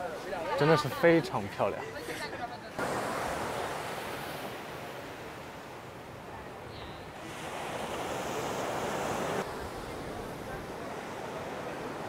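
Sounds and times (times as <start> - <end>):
sea waves washing onto beach: 2.7 - 12.0.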